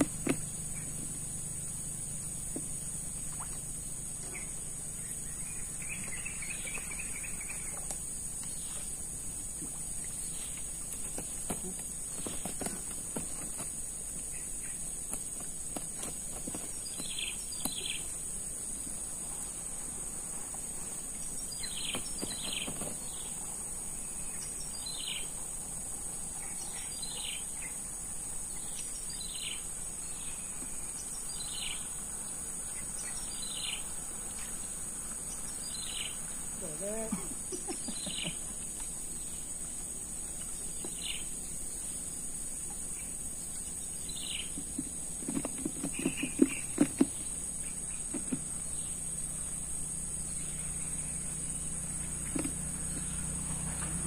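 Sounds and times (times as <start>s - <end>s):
high-pitched insect drone: 16.4s - 54.0s.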